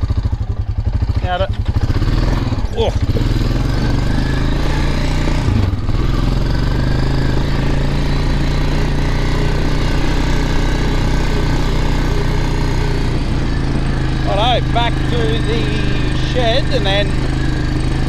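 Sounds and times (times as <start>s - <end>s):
quad bike engine running: 0.0s - 18.0s.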